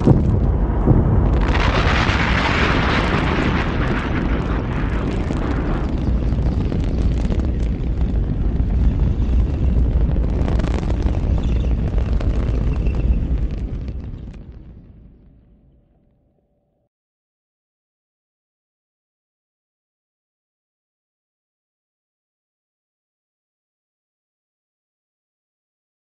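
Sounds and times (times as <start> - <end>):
sharp crack: 0.0 - 8.4
hissing crackling surge: 0.0 - 15.1
deep rocket rumble: 0.0 - 16.4.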